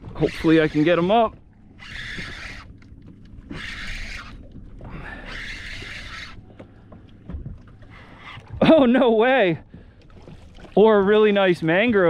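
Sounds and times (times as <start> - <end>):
faint low rumble: 0.0 - 11.1.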